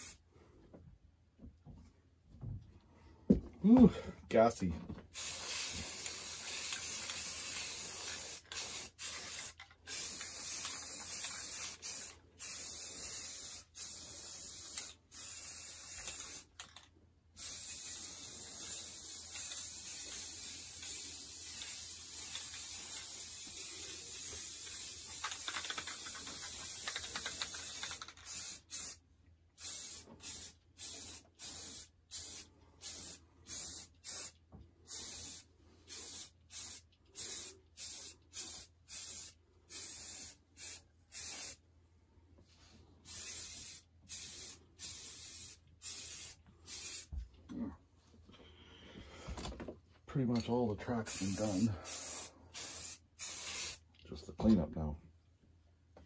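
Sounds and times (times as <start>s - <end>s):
aerosol spray can hissing: 5.2s - 16.5s, 17.4s - 29.0s, 43.1s - 47.1s, 51.1s - 53.8s.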